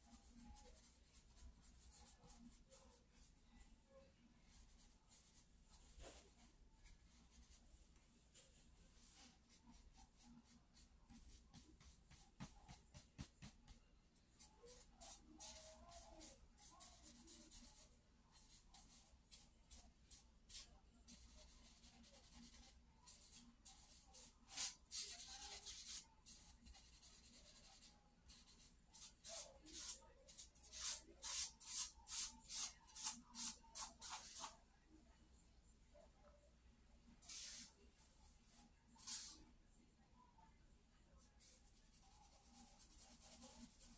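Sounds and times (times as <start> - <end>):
charcoal scratching on paper: 8.9 - 13.8, 14.4 - 34.6, 37.2 - 37.8, 38.4 - 39.4, 41.4 - 43.9.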